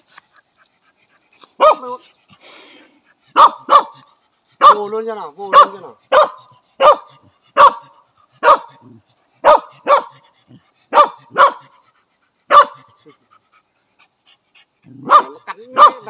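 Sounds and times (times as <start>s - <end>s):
dog barking: 1.6s - 2.0s, 3.3s - 4.0s, 4.6s - 8.8s, 9.4s - 10.2s, 10.9s - 11.7s, 12.5s - 12.9s, 14.9s - 16.0s.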